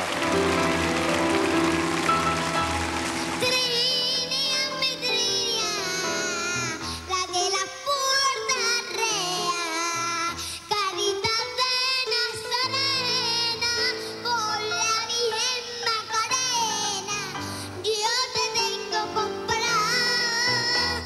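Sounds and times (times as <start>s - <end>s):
held-note musical accompaniment: 0.0s - 6.7s
girl singing with vibrato: 3.4s - 21.0s.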